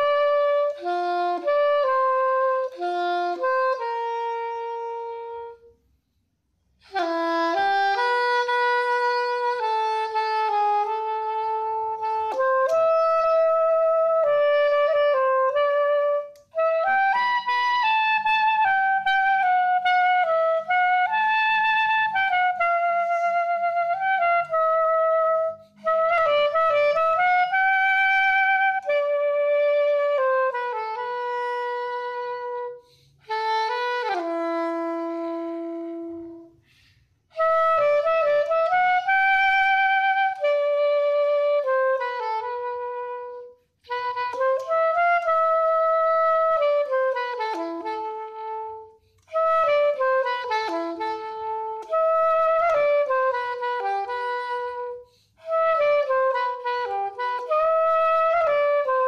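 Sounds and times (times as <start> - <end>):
soprano saxophone melody: 0.0 - 59.0.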